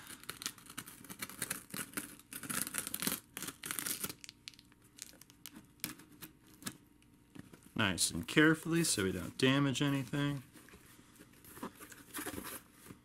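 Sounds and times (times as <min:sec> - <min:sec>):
packaging being torn: 0:00.0 - 0:06.8.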